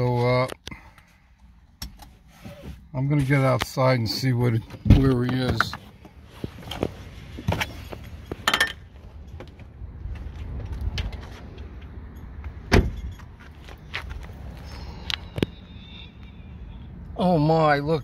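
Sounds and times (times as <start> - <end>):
car door thump: 12.7 - 13.0
car door clicks and rattles: 12.7 - 13.2.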